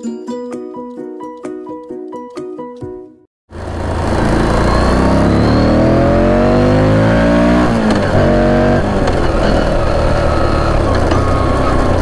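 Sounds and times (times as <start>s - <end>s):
motorcycle engine accelerating: 3.5s - 12.0s.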